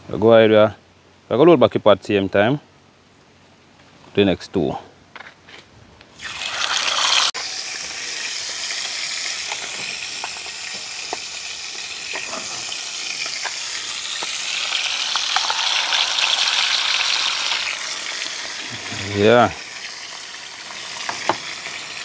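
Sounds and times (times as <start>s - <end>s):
fish sizzling in hot oil: 6.2s - 22.0s
oil popping: 6.2s - 22.0s.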